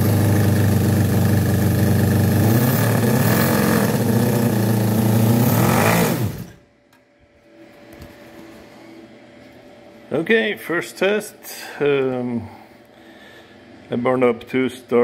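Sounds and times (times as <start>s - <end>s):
model engine running: 0.0s - 6.5s.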